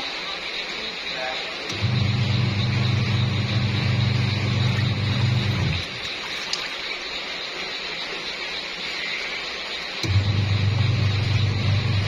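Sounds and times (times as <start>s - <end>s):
washing machine motor humming: 0.0s - 12.0s
water and clothes sloshing: 4.6s - 9.4s.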